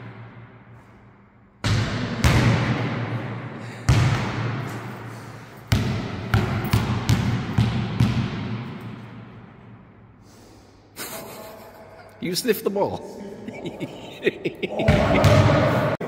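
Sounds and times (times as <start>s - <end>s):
basketball bouncing in a hall: 0.0s - 10.1s, 14.7s - 16.0s.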